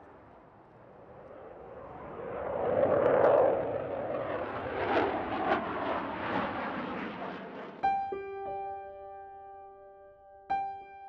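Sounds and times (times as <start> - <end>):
jet engines roaring: 0.0 - 7.8.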